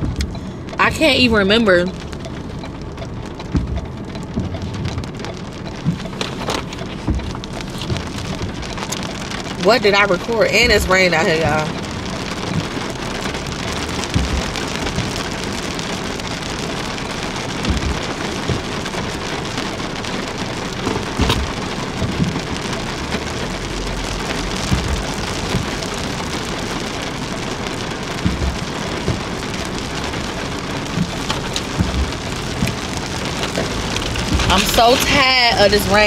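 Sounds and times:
rain on car roof: 0:00.0 - 0:36.0
soft knocks: 0:14.1 - 0:15.2, 0:17.6 - 0:18.7.

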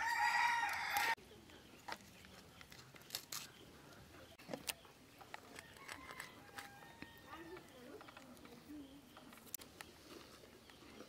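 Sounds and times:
rooster crowing: 0:00.0 - 0:01.2, 0:05.6 - 0:07.5.

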